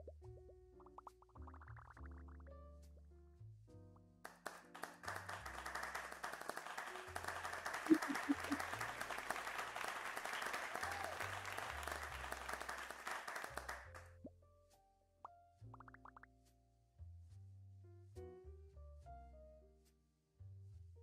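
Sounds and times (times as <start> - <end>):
soft background music: 0.0 - 21.0
many hands clapping: 4.2 - 14.1.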